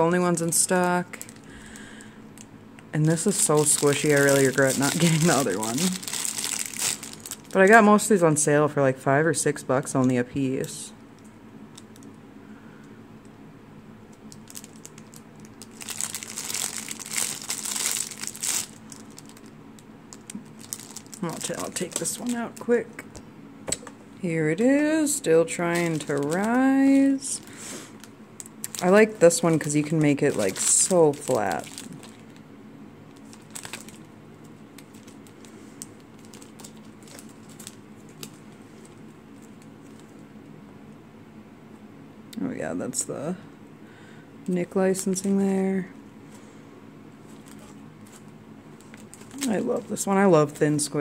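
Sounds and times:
plastic bag crinkling: 0:00.0 - 0:07.8, 0:14.2 - 0:23.1, 0:24.6 - 0:40.2, 0:47.2 - 0:51.0
low room hum: 0:00.0 - 0:51.0.

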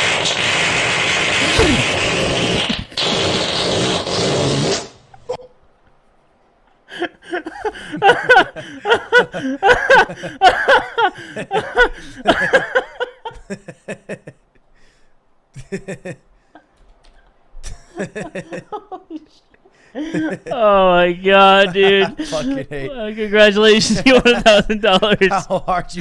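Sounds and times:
loud hissy fart: 0:00.0 - 0:05.2
men laughing: 0:06.9 - 0:14.6, 0:15.5 - 0:16.8, 0:17.6 - 0:26.0.

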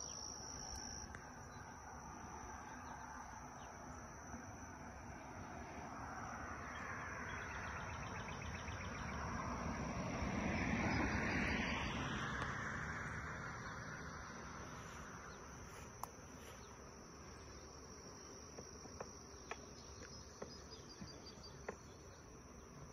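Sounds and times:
honey bees buzzing: 0:13.4 - 0:22.9.

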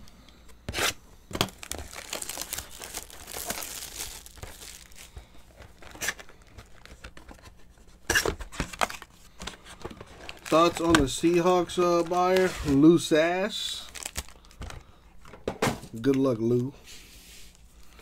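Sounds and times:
plastic wrapping tearing and crinkling: 0:00.8 - 0:07.4, 0:10.0 - 0:13.0, 0:13.8 - 0:14.7.

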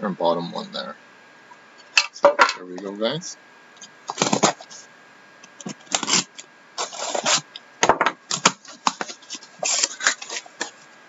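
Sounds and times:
cardboard and tape tearing: 0:04.1 - 0:04.7, 0:05.6 - 0:07.5, 0:08.3 - 0:10.8.

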